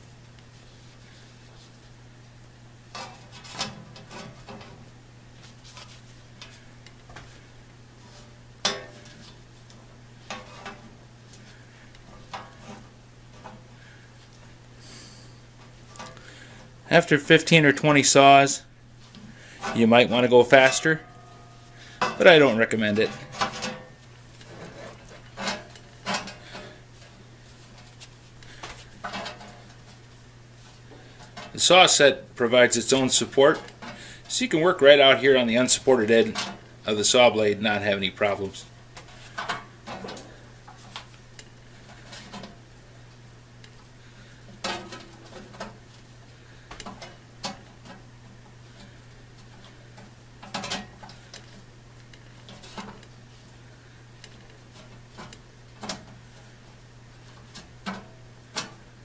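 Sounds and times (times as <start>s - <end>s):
low steady hum: 0.0s - 59.0s.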